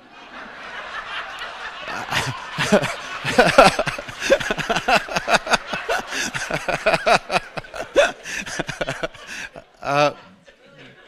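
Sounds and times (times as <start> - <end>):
room of people laughing: 0.0 - 11.0.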